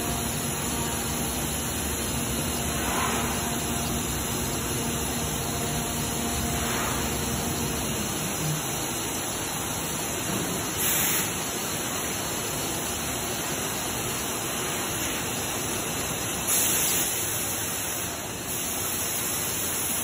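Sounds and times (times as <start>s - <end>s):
bright hiss: 0.0s - 4.5s, 5.6s - 12.1s, 16.2s - 20.0s
cnc router machine noise: 0.0s - 10.8s.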